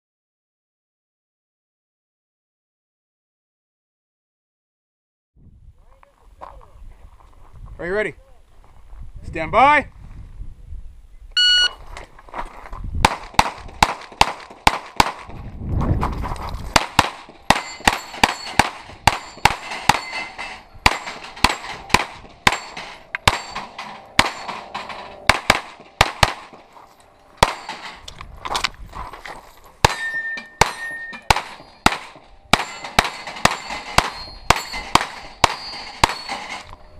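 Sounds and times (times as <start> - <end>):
shot timer beep: 11.4 - 11.8
pistol shots: 13.0 - 15.3, 16.8 - 26.7, 27.4 - 28.0, 29.8 - 36.6.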